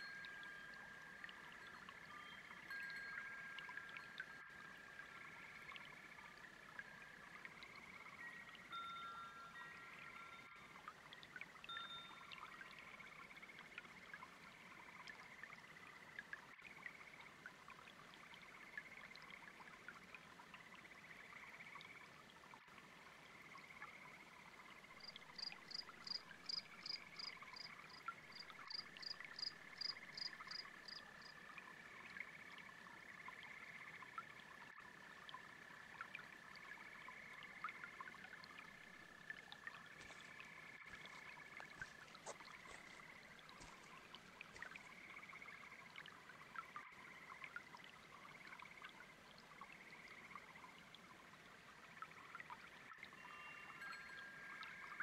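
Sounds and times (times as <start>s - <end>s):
frogs trilling: 0.0s - 10.8s, 23.2s - 50.7s.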